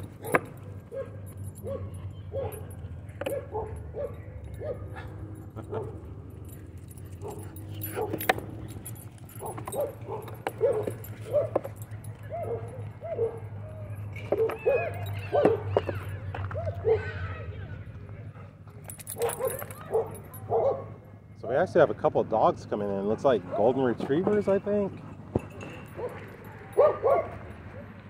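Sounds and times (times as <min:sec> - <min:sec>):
dog whining and yipping: 0:12.2 - 0:17.6.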